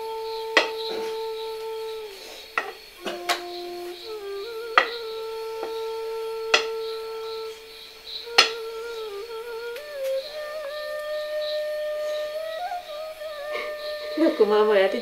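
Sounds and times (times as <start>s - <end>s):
flute-like long notes: 0.0s - 15.0s
sharp percussive strikes: 0.6s - 0.9s, 2.6s - 3.8s, 4.8s - 5.8s, 6.5s - 6.9s, 8.3s - 8.8s.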